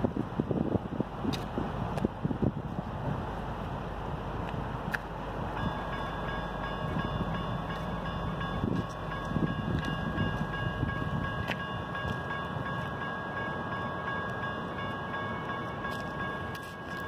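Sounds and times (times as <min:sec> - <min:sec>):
railroad crossing bell ringing: 0:05.1 - 0:17.0.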